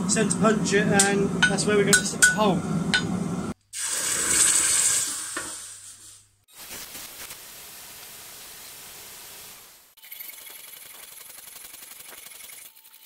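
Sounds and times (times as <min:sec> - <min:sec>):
hot steel sizzling in water: 0:03.7 - 0:13.0.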